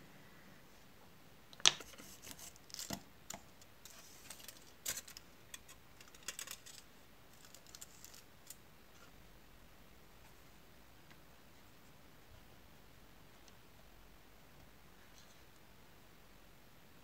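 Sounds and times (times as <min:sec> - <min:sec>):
aluminium foil crinkling: 0:01.9 - 0:08.6.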